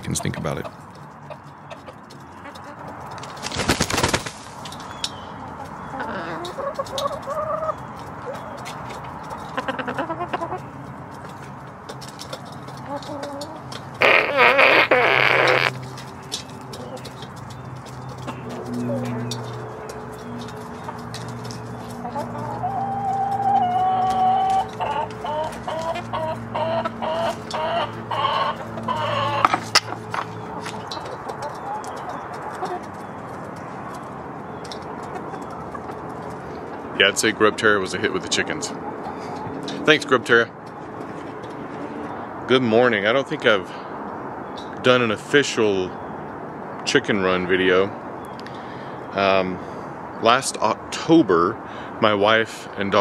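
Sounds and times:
drawn-out hen call: 0.0 - 3.4, 4.9 - 10.8, 12.3 - 33.2
hens clucking: 0.0 - 42.4.

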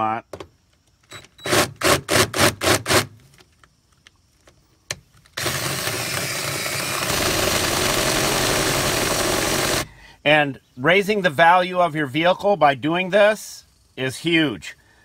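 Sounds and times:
cordless drill cutting metal: 1.4 - 3.0, 5.4 - 9.9.

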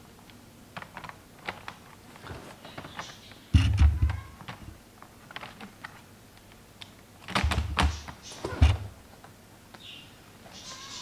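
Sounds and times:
clicks and thumps on laptop: 2.7 - 4.7, 7.2 - 8.9.

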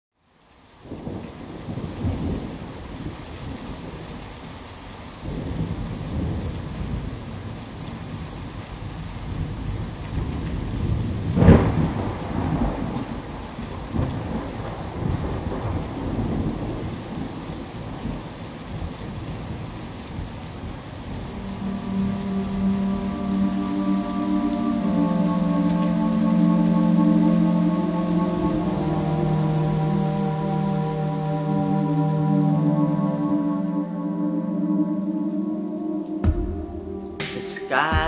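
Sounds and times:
steady rain: 0.1 - 38.0
thunder rumbling: 10.2 - 17.5.

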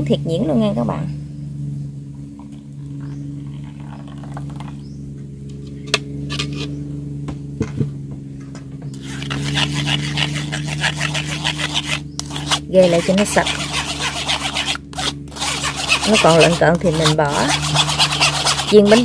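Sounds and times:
steady low hum: 0.0 - 19.0
spoon scraping metal strainer: 9.0 - 19.0.

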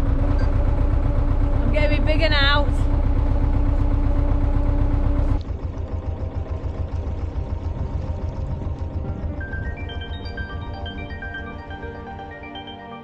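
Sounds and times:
boat engine chugging: 0.0 - 13.0
light music: 5.6 - 13.0.

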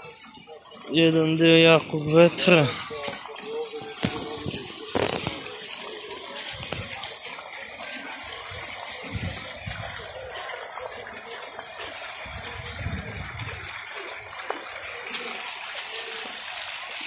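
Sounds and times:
wind buffeting microphone: 12.2 - 13.8.

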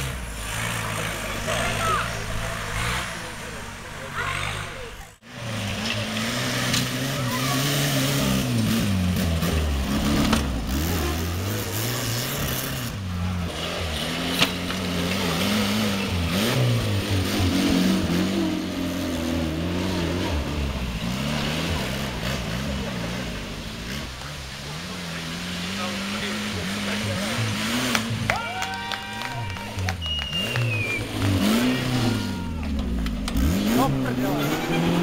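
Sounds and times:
tractor engine revving: 0.0 - 35.0.

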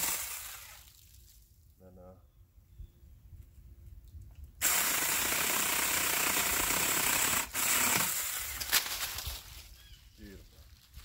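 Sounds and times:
mini chainsaw cutting branch: 4.6 - 9.2.

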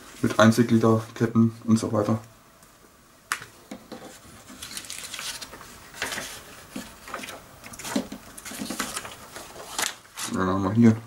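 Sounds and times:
paper rustling and crinkling: 3.9 - 10.9.

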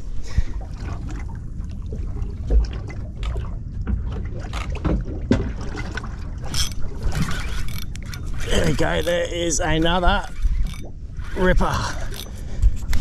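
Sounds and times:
constant low rumble: 0.0 - 13.0
water lapping against boat hull: 0.0 - 13.0.

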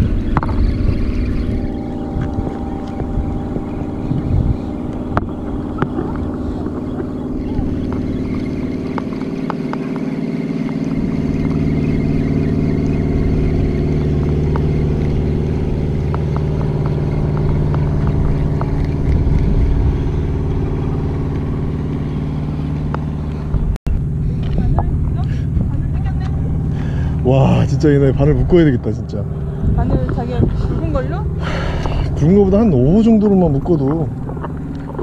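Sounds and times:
low engine drone: 0.0 - 35.0.

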